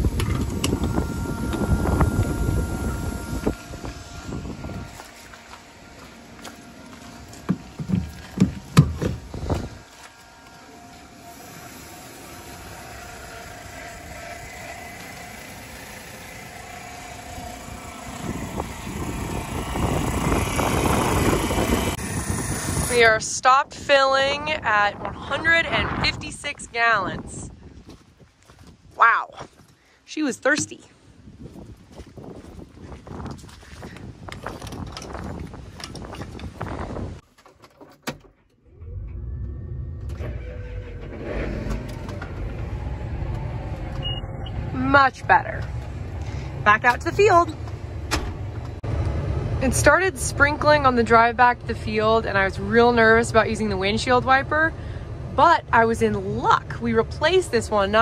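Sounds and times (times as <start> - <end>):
rough rumble: 0.0 - 23.2
fuel pump humming: 0.0 - 24.9, 30.4 - 30.9, 38.6 - 58.0
diesel engine starting and running: 0.0 - 27.5, 38.1 - 58.0.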